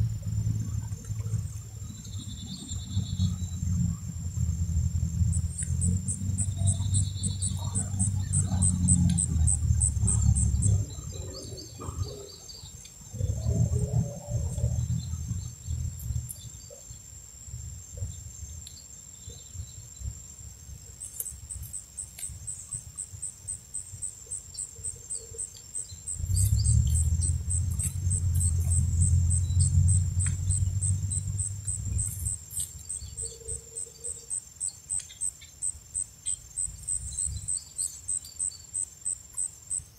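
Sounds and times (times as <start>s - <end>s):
loud low rumble: 0.0s - 11.9s, 26.1s - 32.5s
steady high whine: 0.0s - 16.5s, 21.2s - 39.9s
insects chirping: 0.0s - 39.9s.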